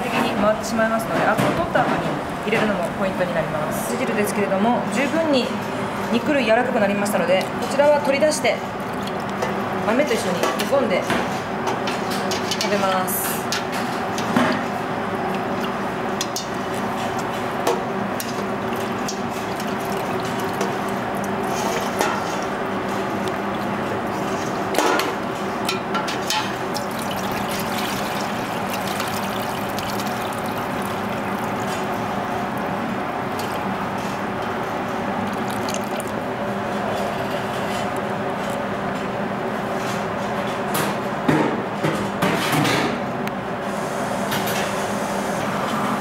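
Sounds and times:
steady background hum: 0.0 - 46.0
liquid dripping and sloshing: 6.9 - 10.7, 15.3 - 38.6.

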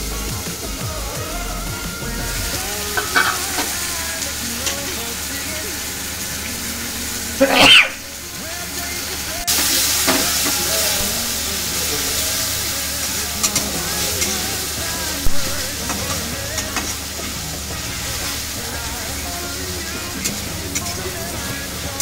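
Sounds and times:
mushrooms sizzling in oil: 0.0 - 22.0
stirring clicks: 13.4 - 14.5, 15.8 - 17.4, 20.2 - 21.2.

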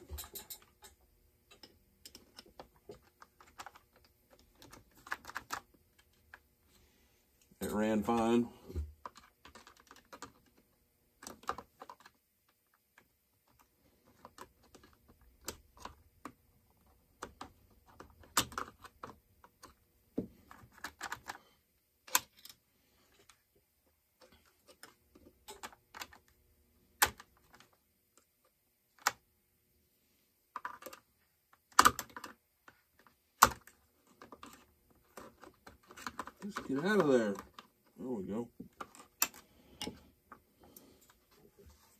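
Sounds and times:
hand tools clicking and clinking: 0.0 - 2.3.

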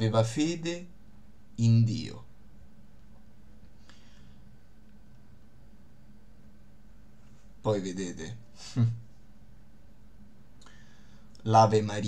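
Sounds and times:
low hum: 0.0 - 12.0
faint hiss: 6.3 - 9.6, 10.2 - 12.0.

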